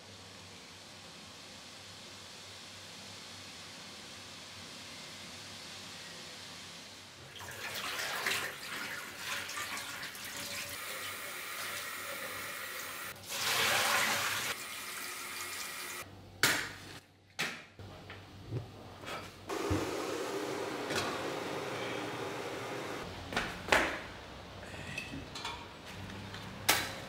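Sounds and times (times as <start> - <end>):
pot being rinsed: 7.2 - 16.0
tap water running into a sink: 7.3 - 16.0.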